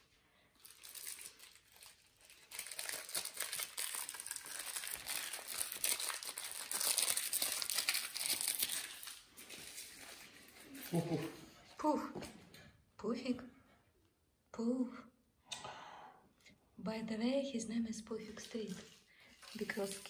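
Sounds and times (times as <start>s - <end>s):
plastic crinkling: 0.5s - 11.1s, 18.4s - 20.0s.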